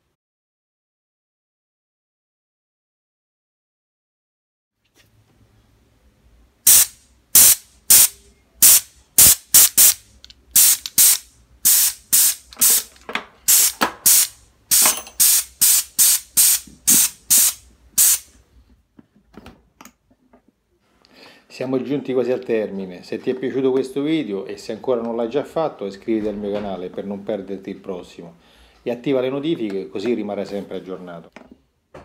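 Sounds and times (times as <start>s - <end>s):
compressed air blasts from inflator: 6.7s - 10.0s, 10.6s - 12.9s, 13.5s - 18.3s.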